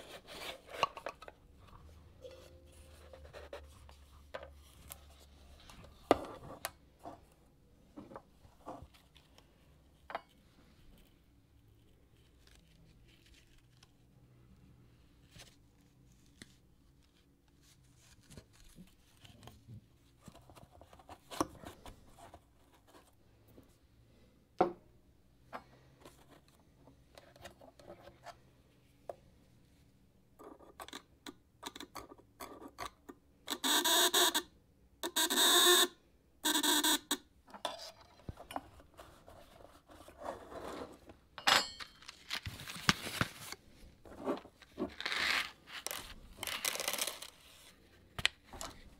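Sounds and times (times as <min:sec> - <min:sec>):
paper envelope rustling: 0:42.0 - 0:48.6.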